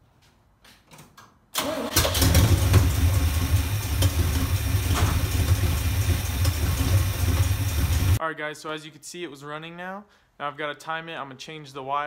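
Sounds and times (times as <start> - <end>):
engine cranking on starter: 1.6 - 8.2
car engine running: 2.0 - 8.2.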